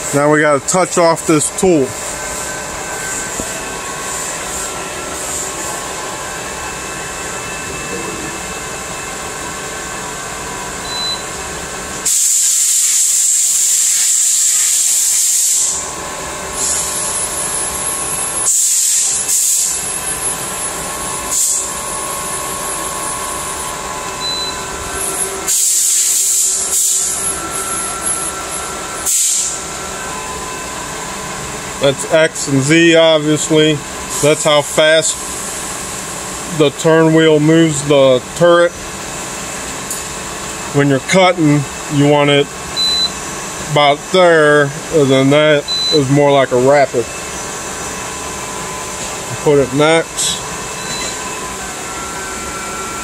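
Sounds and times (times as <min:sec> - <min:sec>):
lathe machine hum: 0:00.0 - 0:12.1, 0:15.6 - 0:53.0
loud bursts of hiss: 0:12.0 - 0:15.8, 0:16.5 - 0:17.2, 0:18.4 - 0:19.9, 0:21.3 - 0:21.7, 0:25.0 - 0:27.2, 0:29.0 - 0:29.6.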